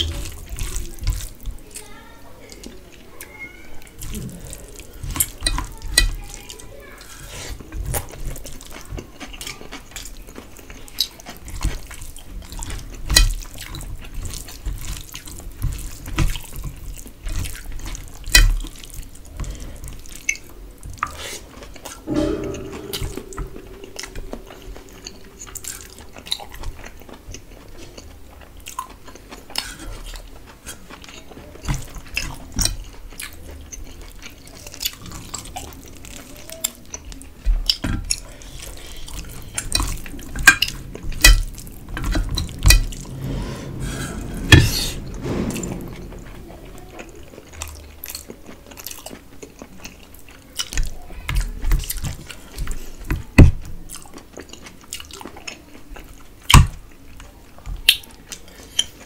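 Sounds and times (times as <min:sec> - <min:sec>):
short low hum: 0:40.6 - 0:47.4.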